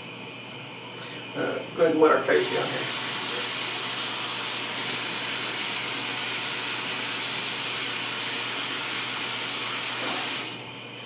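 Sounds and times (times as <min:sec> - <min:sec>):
faucet water pouring into sink: 0:02.4 - 0:10.6.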